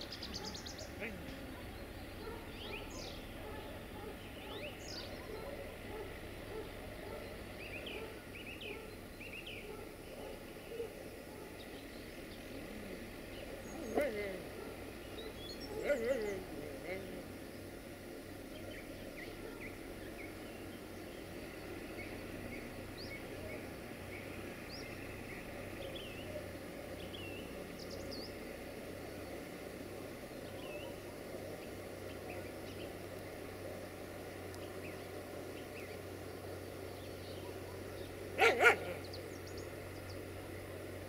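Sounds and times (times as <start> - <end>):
small birds chirping: 0.0 - 41.0
steady background hum: 0.0 - 41.0
dog barking: 0.3 - 1.1, 2.2 - 9.0, 9.6 - 11.6, 13.9 - 16.3, 19.3 - 19.7, 37.4 - 39.0.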